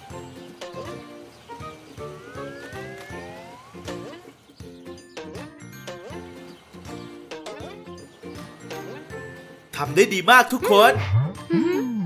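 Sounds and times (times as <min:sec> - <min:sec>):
upbeat cartoon music: 0:00.0 - 0:12.0.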